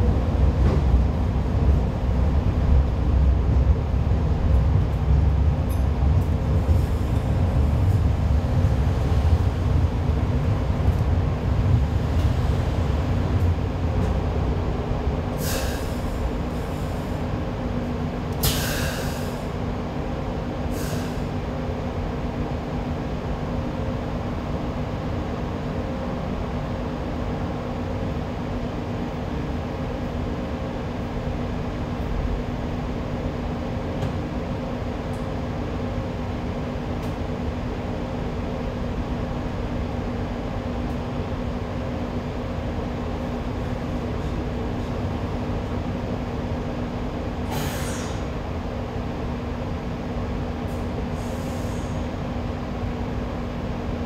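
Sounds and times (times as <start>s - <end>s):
light rail car rumbling on track: 0.0s - 54.0s
short sharp hisses: 15.4s - 16.1s, 18.4s - 19.4s, 47.5s - 48.3s, 51.2s - 52.1s.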